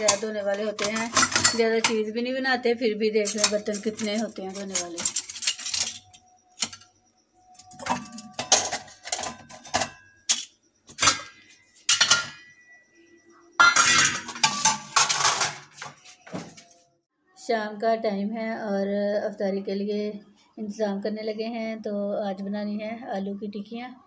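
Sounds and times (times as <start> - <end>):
metal dishes clattering: 0.0 - 2.2, 3.1 - 6.9, 7.6 - 12.8, 13.6 - 16.7.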